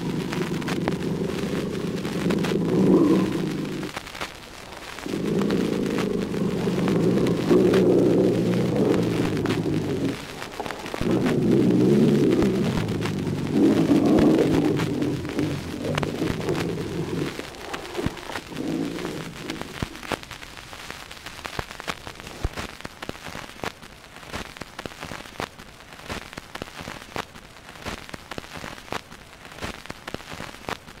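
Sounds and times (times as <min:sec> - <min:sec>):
low sound: 0:00.0 - 0:04.0, 0:04.6 - 0:20.2
record surface crackle: 0:00.0 - 0:31.0.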